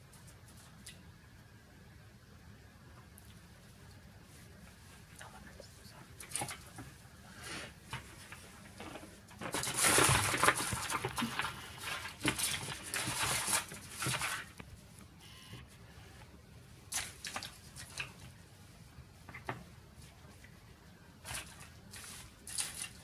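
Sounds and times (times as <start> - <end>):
wrapping rustling and crackling: 7.8 - 15.0, 21.2 - 23.0.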